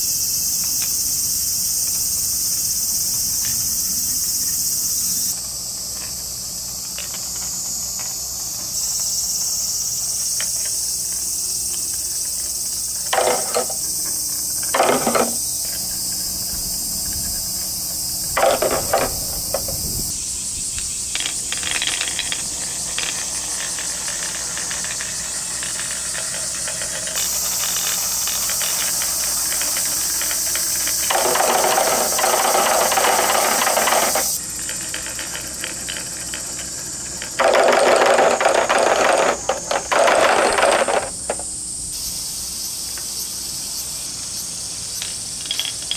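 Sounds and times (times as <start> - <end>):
high-pitched insect chorus: 0.0 - 45.9
marbles rolling down wooden ramp: 11.9 - 13.9, 14.6 - 15.5, 18.4 - 19.8, 21.1 - 41.4, 45.0 - 45.9.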